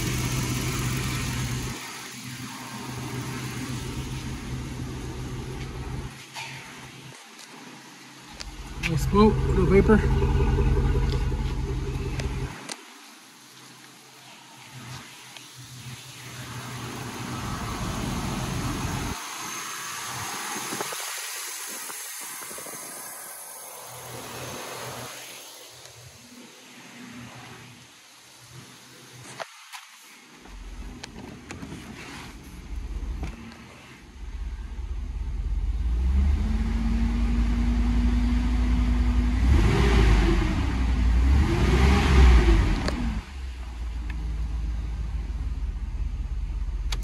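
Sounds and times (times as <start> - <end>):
steady hiss: 0.0 - 9.8, 10.6 - 35.7
engine idling: 0.0 - 12.8, 14.0 - 26.4, 32.3 - 41.3, 42.4 - 47.0
deep low rumble: 8.4 - 12.6.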